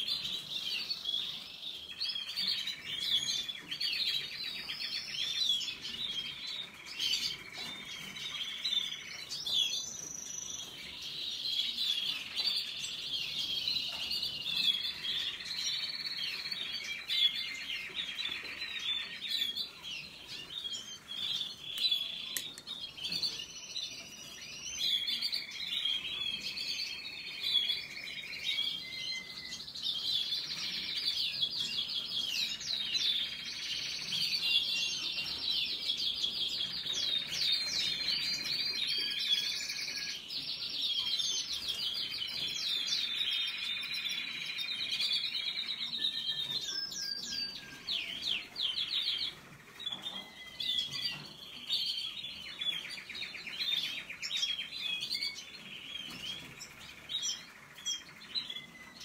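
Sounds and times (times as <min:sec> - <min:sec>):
canaries singing: 0:00.0 - 0:59.0.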